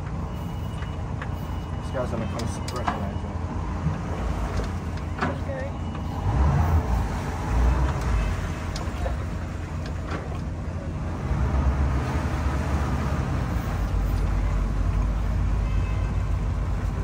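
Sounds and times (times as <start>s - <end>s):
boat engines idling: 0.0s - 17.0s.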